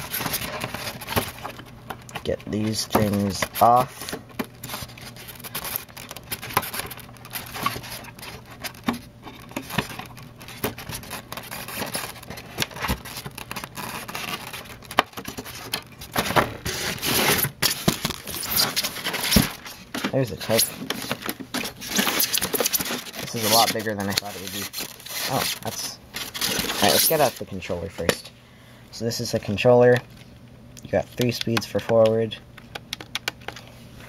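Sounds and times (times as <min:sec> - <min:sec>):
scraping against styrofoam: 0:02.5 - 0:27.5.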